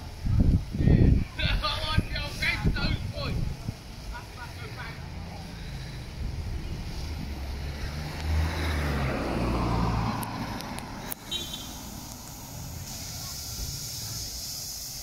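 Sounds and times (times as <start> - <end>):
vehicle driving past: 4.7 - 12.9.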